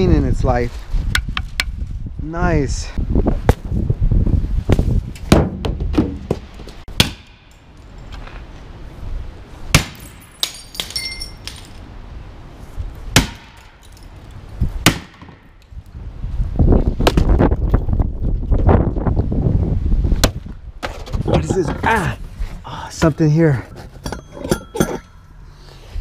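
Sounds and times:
glassy clinking: 10.6 - 11.5.

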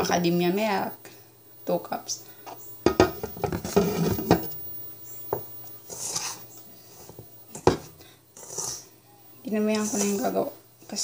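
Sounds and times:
glassware knocks: 2.9 - 4.5.

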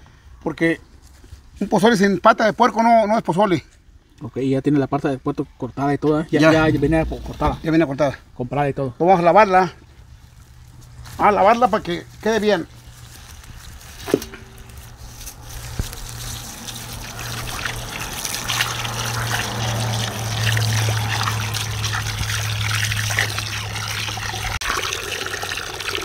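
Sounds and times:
steady low hum: 6.3 - 8.5
water running and splashing: 10.5 - 26.0.

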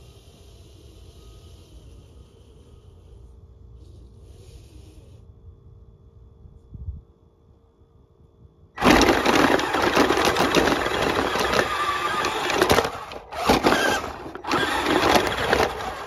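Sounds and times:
electric motors whirring: 8.8 - 16.0
tyres in snow: 8.8 - 16.0.

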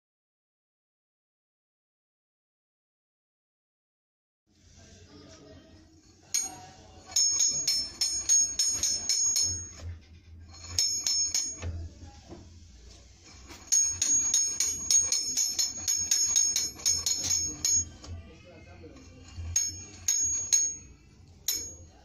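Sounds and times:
ratchet clicking with metallic ring: 6.3 - 9.9, 10.5 - 11.8, 13.6 - 18.2, 19.0 - 22.0.

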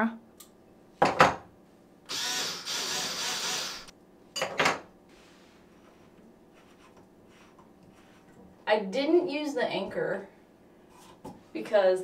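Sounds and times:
drill bursts: 2.1 - 3.9
drill rattling: 2.1 - 3.9.

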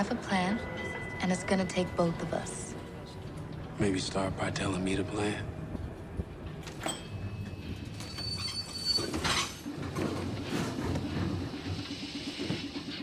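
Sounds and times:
streetcar rumbling on rails: 0.0 - 13.0
high wheel squeal: 7.5 - 9.7.

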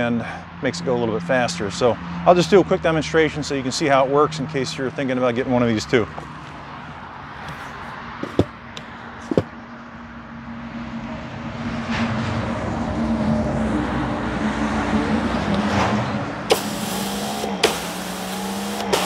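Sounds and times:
pressure washer humming: 16.5 - 19.0
sharp clicks: 16.5 - 19.0
water jet hissing on concrete: 16.5 - 19.0.

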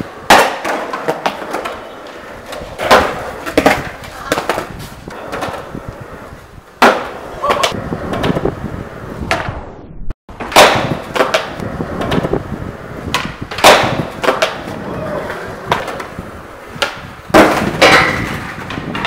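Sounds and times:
skateboard clacks: 0.0 - 6.1, 10.4 - 12.4, 13.0 - 19.0
skateboard wheels rolling: 0.0 - 9.7, 10.3 - 19.0.

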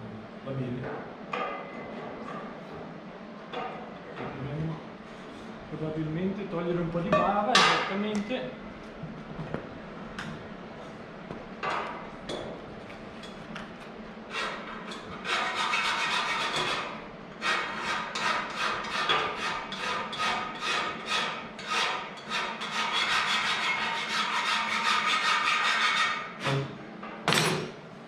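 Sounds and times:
file scraping aluminium: 14.3 - 26.6.

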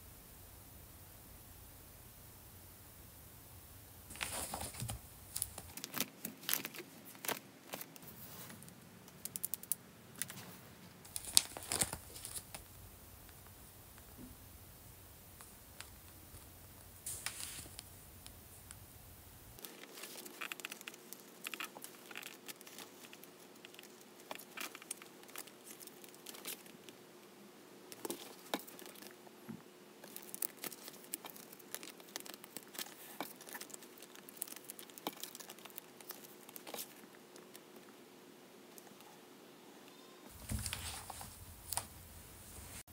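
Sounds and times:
faint steady hum: 0.0 - 42.9
plastic sleeves crinkling: 4.1 - 12.7, 15.4 - 18.8, 19.5 - 27.0, 27.9 - 29.2, 30.0 - 37.9, 40.3 - 42.8.

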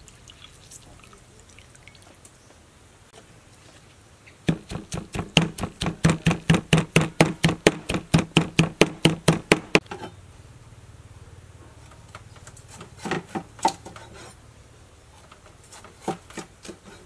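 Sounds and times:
knife chopping on wooden board: 4.5 - 9.8.

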